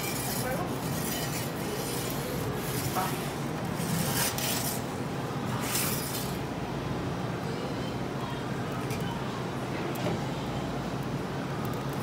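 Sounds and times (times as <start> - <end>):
metal peel scraping stone floor: 0.0 - 4.9, 5.5 - 6.4
kitchen background noise: 0.0 - 6.5.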